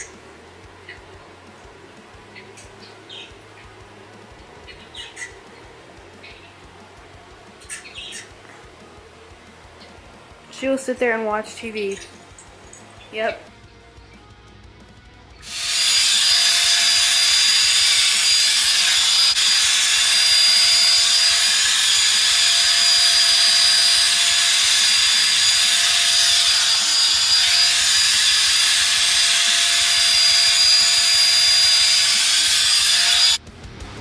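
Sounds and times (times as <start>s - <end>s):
hair dryer blowing air: 15.4s - 33.4s.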